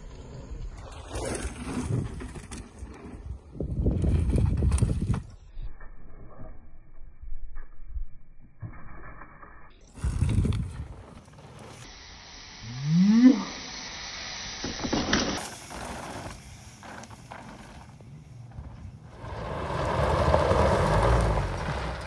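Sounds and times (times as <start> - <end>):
tyres spinning on gravel: 15.4 - 22.0
van engine rumble: 17.3 - 22.0.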